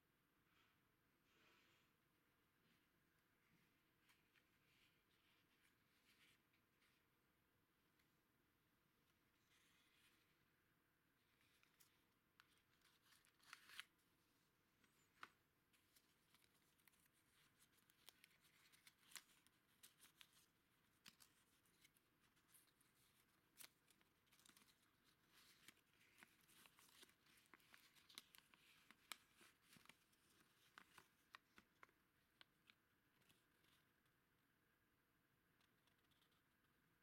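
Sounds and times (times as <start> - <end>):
paper and cardboard crackling: 11.4 - 14.0, 14.8 - 33.8.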